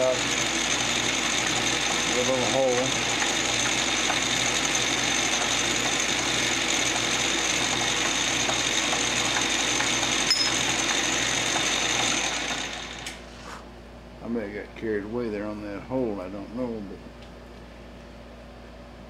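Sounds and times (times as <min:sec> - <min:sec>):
metal lathe motor whine: 0:00.0 - 0:13.2.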